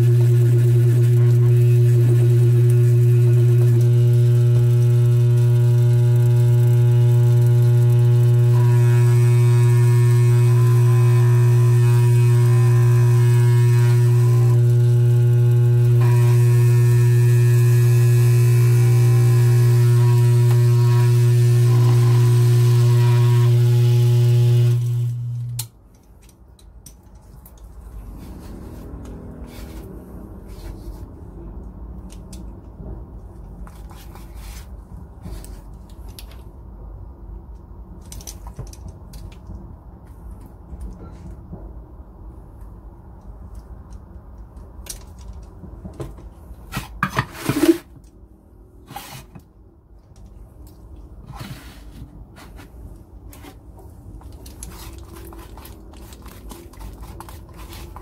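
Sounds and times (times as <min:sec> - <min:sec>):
dental vibrator humming and buzzing: 0:00.0 - 0:25.7.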